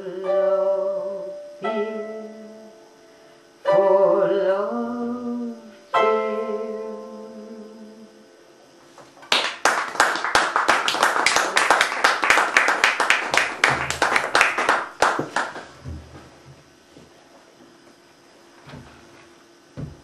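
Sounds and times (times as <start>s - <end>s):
audience applauding: 9.3s - 15.7s.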